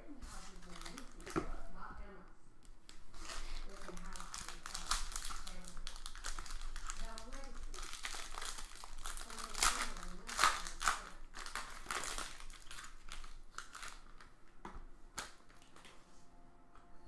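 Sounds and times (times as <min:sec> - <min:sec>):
foil wrapper crinkling: 0:00.4 - 0:01.4, 0:02.9 - 0:14.3.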